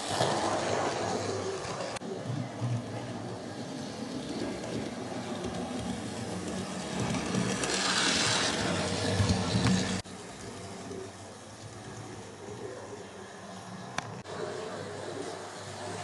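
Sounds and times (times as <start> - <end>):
train wheels rattling over rails: 2.6 - 10.5.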